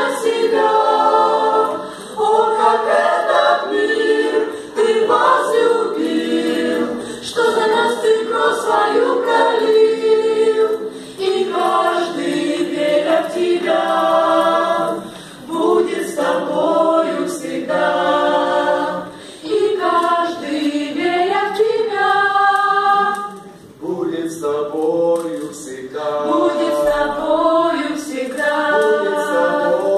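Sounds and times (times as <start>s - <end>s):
choir singing a cappella: 0.0s - 29.9s
singers breathing: 1.8s - 2.2s, 4.4s - 4.8s, 6.9s - 7.4s, 10.8s - 11.2s, 15.0s - 15.5s, 19.0s - 19.5s.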